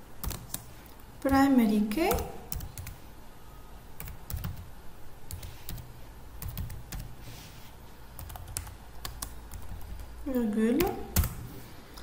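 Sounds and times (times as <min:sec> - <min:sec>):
keyboard typing clicks: 0:08.2 - 0:10.1.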